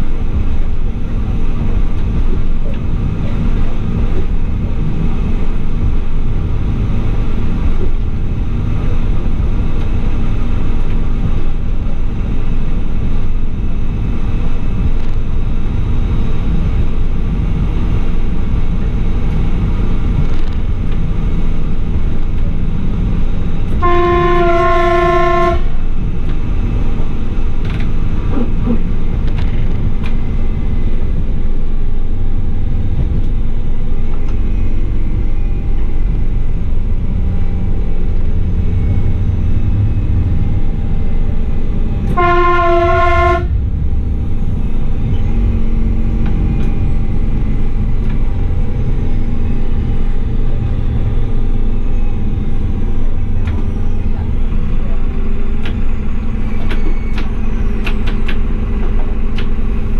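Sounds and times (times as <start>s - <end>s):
wheels rumbling on rail: 0.0s - 59.9s
two-tone train horn blast: 23.8s - 25.8s, 42.0s - 43.6s.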